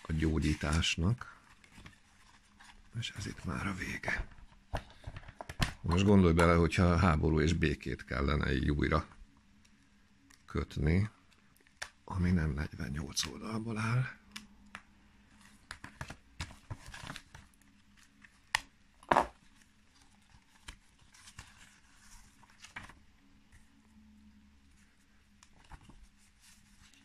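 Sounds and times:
book pages rustling: 0:00.0 - 0:06.6, 0:14.7 - 0:24.0, 0:24.6 - 0:27.0
paper crackle: 0:15.3 - 0:18.7, 0:19.3 - 0:23.8.

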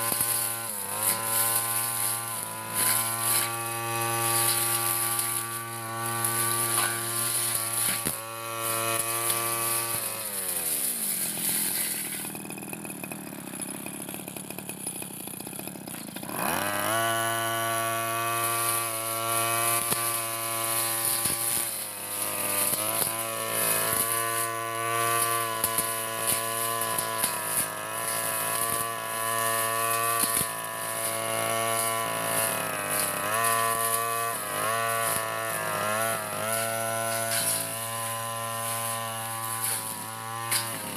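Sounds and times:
brush cutter engine revving: 0:00.0 - 0:40.9.

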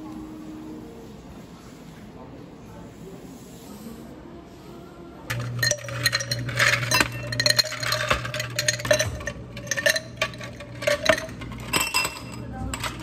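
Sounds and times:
low machine hum: 0:00.0 - 0:13.0
dishes and glassware clinking: 0:05.3 - 0:13.0.

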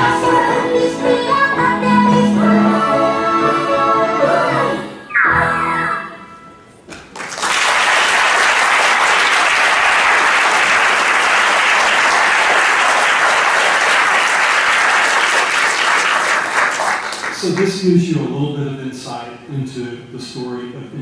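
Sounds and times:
audience applauding: 0:07.0 - 0:17.7.

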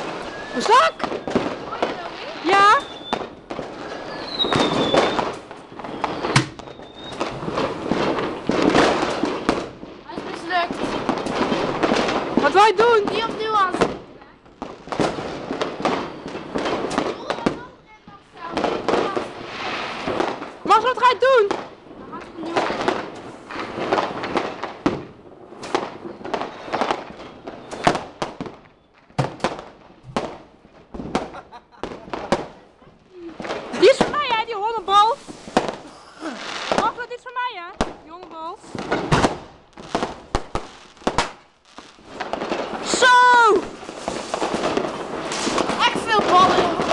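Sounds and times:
falling firework whistle: 0:00.0 - 0:01.6, 0:02.4 - 0:07.6, 0:26.1 - 0:29.1
sharp firework bang: 0:00.0 - 0:14.0, 0:18.4 - 0:20.5, 0:29.2 - 0:30.4, 0:38.7 - 0:41.4, 0:42.1 - 0:46.9
fireworks popping and crackling: 0:00.0 - 0:46.9.

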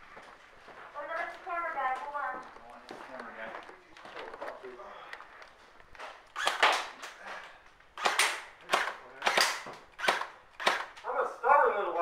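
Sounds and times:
airsoft gun shots: 0:06.4 - 0:07.0, 0:08.0 - 0:11.0.

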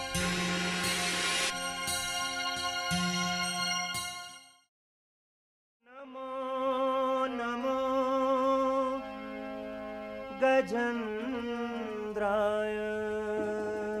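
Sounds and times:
person singing: 0:05.8 - 0:09.2, 0:10.4 - 0:14.0
devotional music with drone: 0:06.4 - 0:14.0.

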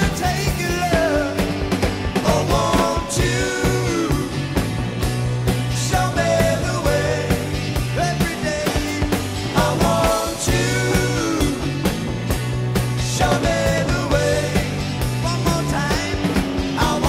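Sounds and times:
person singing over drums and bass: 0:00.0 - 0:17.0.

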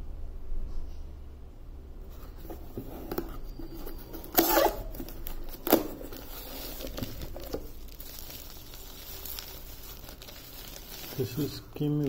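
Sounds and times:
cardboard scraping and rustling: 0:02.1 - 0:12.0
cardboard tape tearing: 0:02.4 - 0:12.0.

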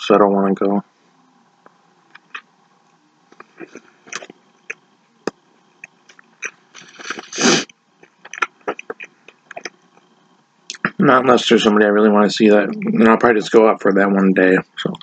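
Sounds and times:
person chewing with mouth smacks: 0:02.1 - 0:02.5, 0:03.3 - 0:10.1.

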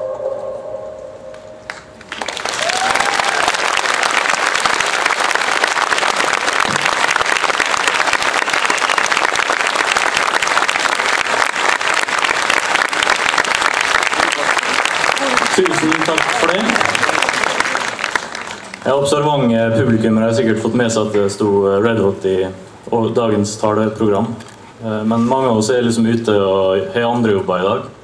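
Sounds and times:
audience applauding: 0:01.7 - 0:19.3.

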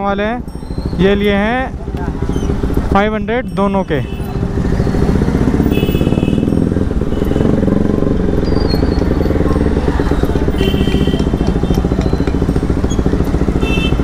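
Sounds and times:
motorcycle engine running: 0:00.0 - 0:14.0
horn beeping: 0:03.4 - 0:14.0.

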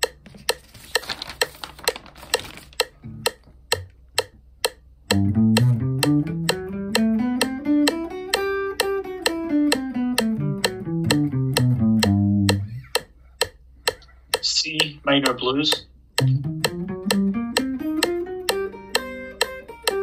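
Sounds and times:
metronome clicking: 0:00.0 - 0:20.0
paper rustling: 0:00.2 - 0:02.8
electric guitar playing scale: 0:03.0 - 0:03.9, 0:05.1 - 0:12.9, 0:14.4 - 0:20.0.

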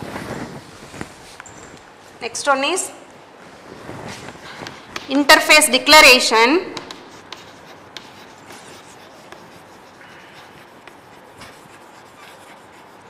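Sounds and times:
chalk scratching on blackboard: 0:06.7 - 0:13.0.

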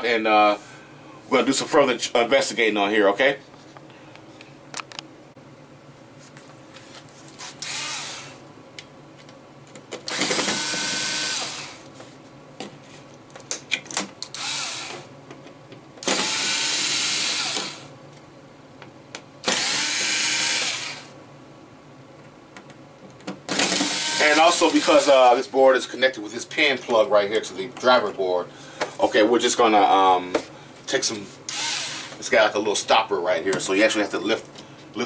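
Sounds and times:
electric screwdriver whirring: 0:07.4 - 0:08.4, 0:10.1 - 0:11.8, 0:14.3 - 0:15.1, 0:16.0 - 0:17.9, 0:19.4 - 0:21.1, 0:23.5 - 0:25.2, 0:31.5 - 0:32.2.

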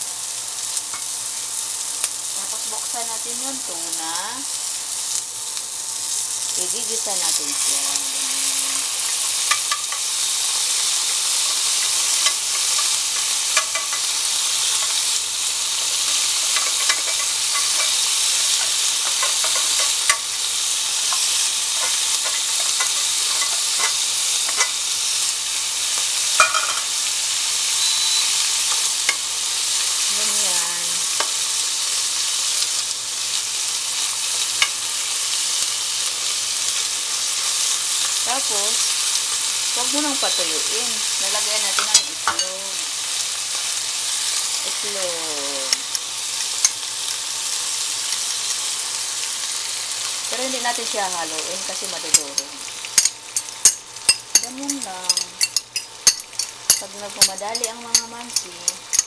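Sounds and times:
food sizzling in oil: 0:00.0 - 0:59.0
spatula tapping pan: 0:11.8 - 0:14.1, 0:16.5 - 0:18.0, 0:18.6 - 0:20.3, 0:21.1 - 0:24.8.

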